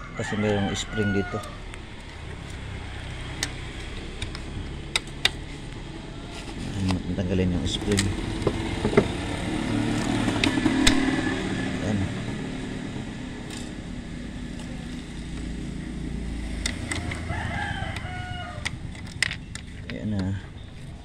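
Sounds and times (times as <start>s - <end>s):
rooster crowing: 0.0s - 1.8s, 5.9s - 6.6s, 10.1s - 12.6s, 16.8s - 18.9s
low steady hum: 0.0s - 21.0s.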